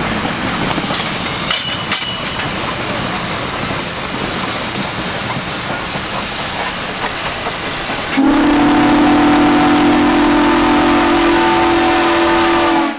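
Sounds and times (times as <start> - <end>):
loud steam whistle blast: 8.2 - 12.9.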